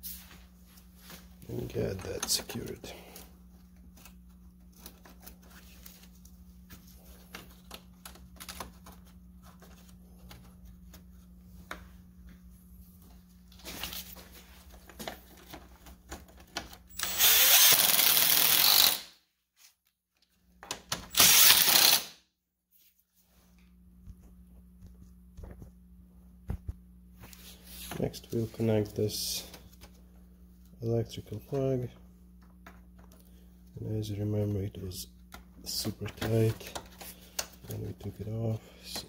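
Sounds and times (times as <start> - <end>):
impact driver bursts: 16.9 - 19.1, 21.1 - 22.2.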